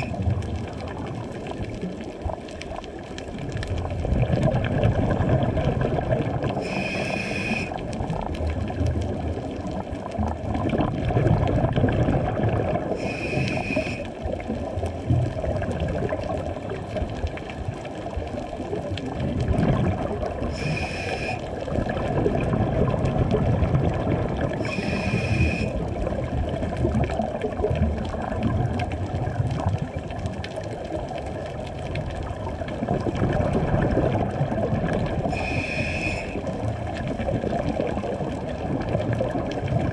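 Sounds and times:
gurgling exhaled bubbles: 0.0 - 39.9
regulator hissing inhale: 6.6 - 7.8, 13.0 - 14.1, 20.5 - 21.5, 24.6 - 25.8, 35.3 - 36.4.

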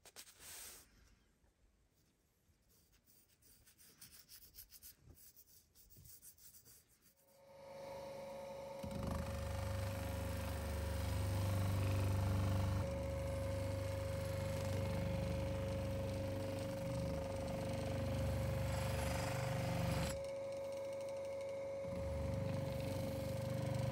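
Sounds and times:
bench polisher whining: 7.6 - 23.9.

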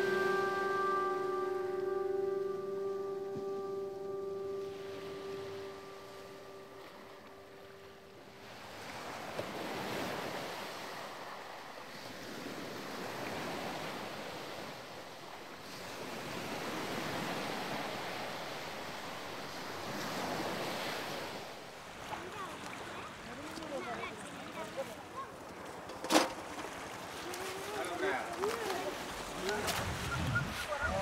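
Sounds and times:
held musical drone: 0.0 - 8.3
surf washing up a beach: 0.0 - 31.0.

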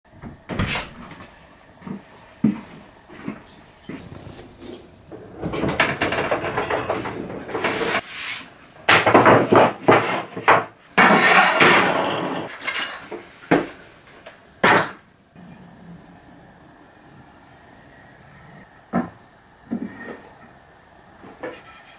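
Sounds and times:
wooden slats clattering: 4.3 - 8.0, 8.9 - 13.2.

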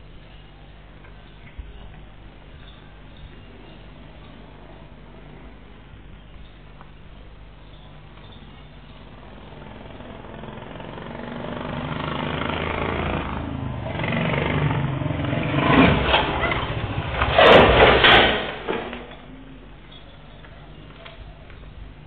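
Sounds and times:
motorcycle engine approaching: 7.6 - 19.6
motorcycle crash: 9.8 - 19.3
sharp impact clacks: 15.2 - 19.2.

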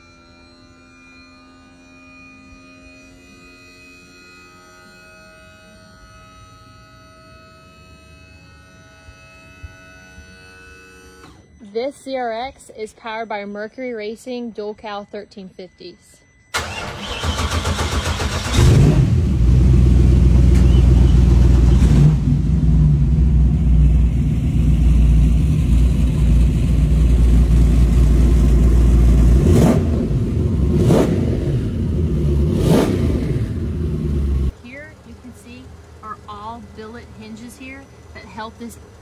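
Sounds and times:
engines revving: 16.6 - 39.0
boat engines rumbling: 18.5 - 30.8, 33.5 - 39.0.

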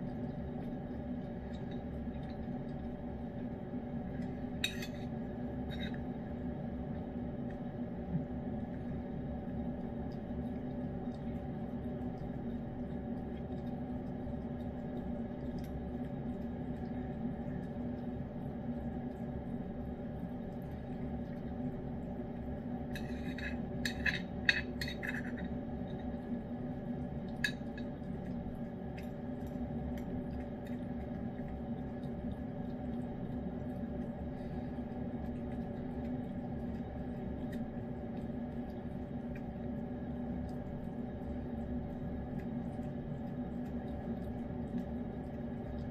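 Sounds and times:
appliance humming: 0.0 - 45.9
spoon scraping ceramic dish: 4.6 - 5.1, 23.0 - 25.4.

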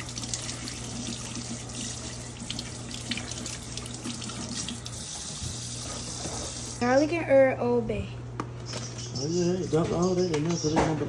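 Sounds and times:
faucet water splashing into sink: 0.0 - 6.8.

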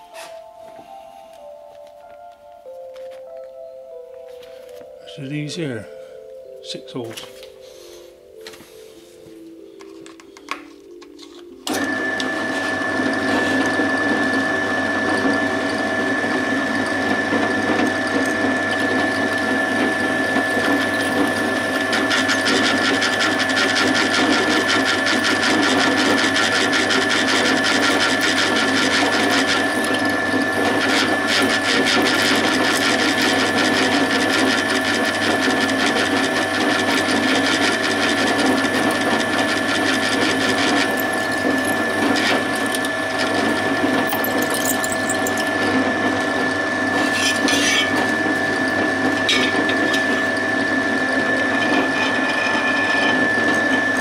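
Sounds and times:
drill whining through metal: 11.6 - 54.0.

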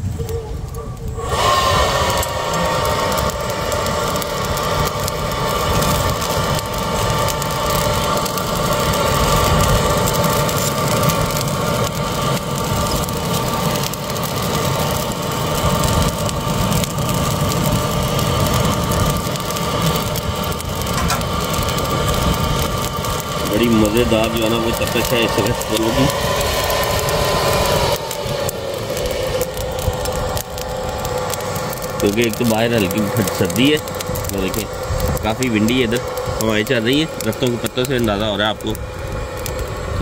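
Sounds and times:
mechanical hum with whine: 0.0 - 40.0
wind rumble on microphone: 0.0 - 40.0.

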